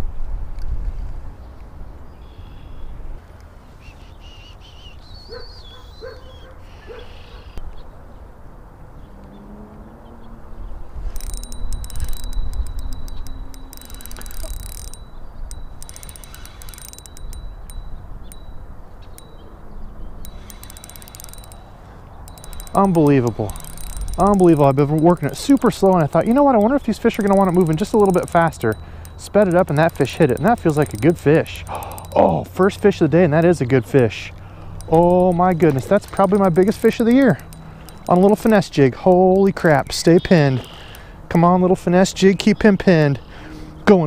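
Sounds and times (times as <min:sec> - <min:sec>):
fishing reel clicking: 0:11.0 - 0:19.4, 0:20.2 - 0:41.1
faint reel whine: 0:11.0 - 0:19.5, 0:20.2 - 0:33.7, 0:34.4 - 0:41.2.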